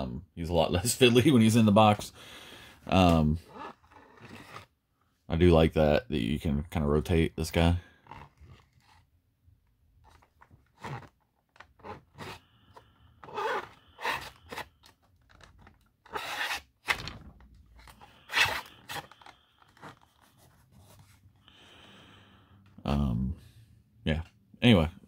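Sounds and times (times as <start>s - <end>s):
plastic creaks: 2.9s - 4.7s, 7.9s - 9.1s, 10.0s - 20.4s
plastic clicks and scrapes: 10.0s - 20.4s.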